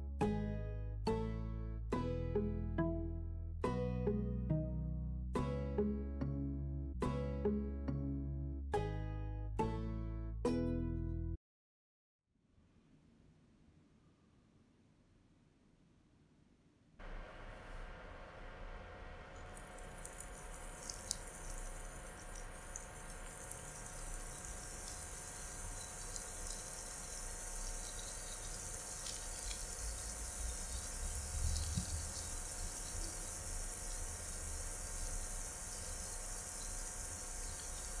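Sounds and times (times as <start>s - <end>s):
oil crackling: 19.3s - 38.0s
food sizzling in oil: 19.4s - 38.0s.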